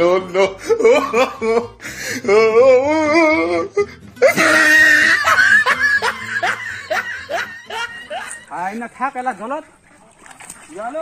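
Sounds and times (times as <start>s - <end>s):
person laughing: 0.1s - 1.7s, 4.2s - 8.6s.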